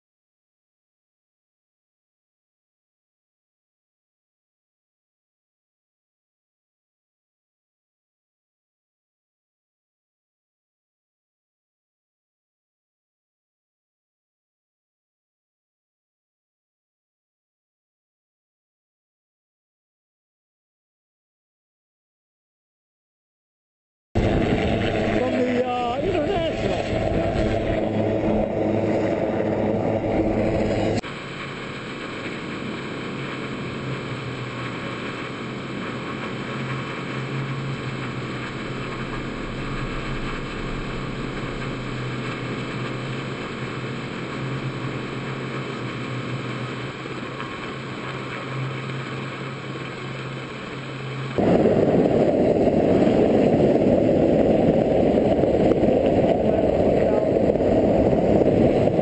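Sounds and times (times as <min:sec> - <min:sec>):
loud rushing noise: 0:24.2 - 0:47.3, 0:51.4 - 0:59.0
helicopter engine: 0:24.2 - 0:55.1.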